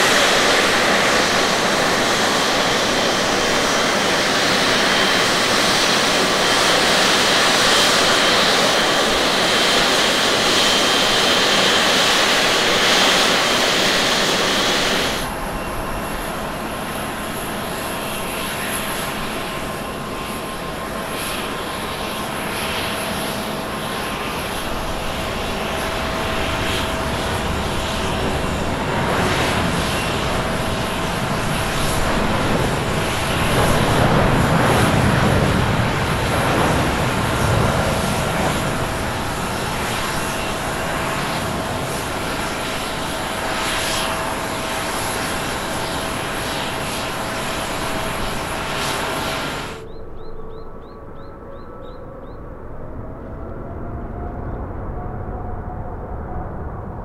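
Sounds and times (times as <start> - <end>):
jet engines at takeoff: 0.0 - 57.0.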